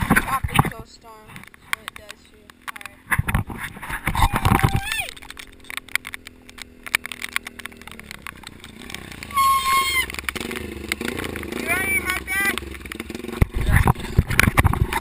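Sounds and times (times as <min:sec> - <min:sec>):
dirt bike engine idling and revving: 0:00.0 - 0:15.0
person shouting: 0:04.2 - 0:05.2, 0:09.4 - 0:10.1.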